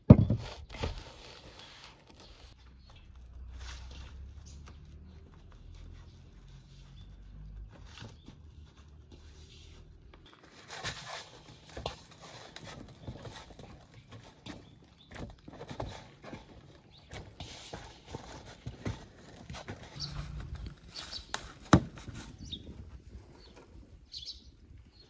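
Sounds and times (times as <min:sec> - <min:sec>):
low steady rumble: 0:20.0 - 0:21.4.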